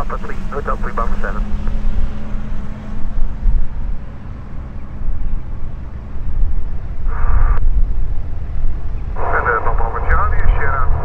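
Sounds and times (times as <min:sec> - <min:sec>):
airplane engine and propeller rumble: 0:00.0 - 0:11.0
airband radio burst: 0:09.2 - 0:11.0.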